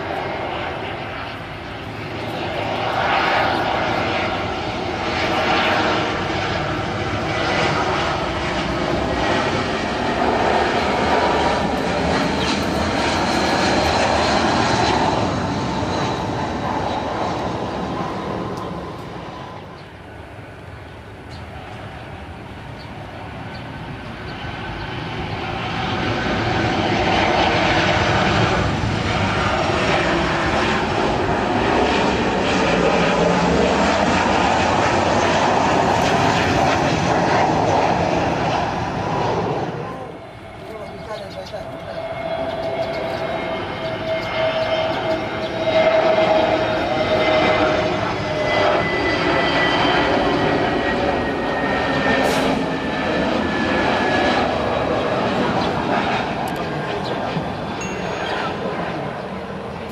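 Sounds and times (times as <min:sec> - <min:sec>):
jet engines roaring past: 0:00.0 - 0:59.9
jet engines rumbling: 0:00.0 - 0:59.9.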